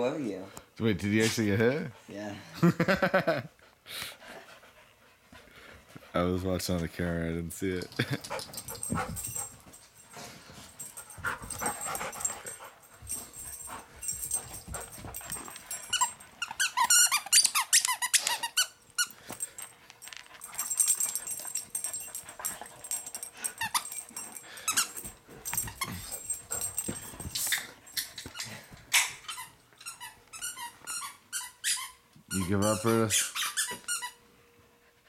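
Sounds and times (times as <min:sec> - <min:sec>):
squeaky dog toy squeaking: 0:15.9 - 0:19.1, 0:28.9 - 0:34.2.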